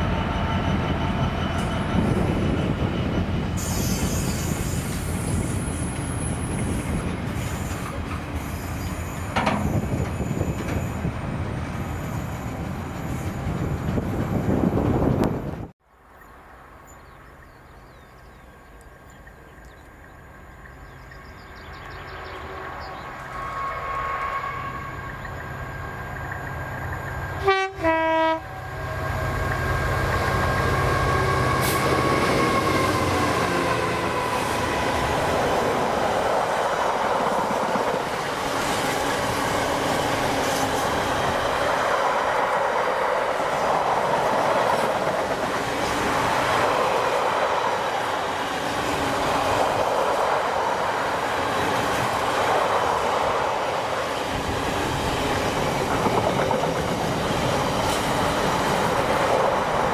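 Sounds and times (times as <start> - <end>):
train wagons clattering over rail joints: 5.8 - 11.0
locomotive two-tone horn: 22.3 - 25.2, 27.4 - 29.4.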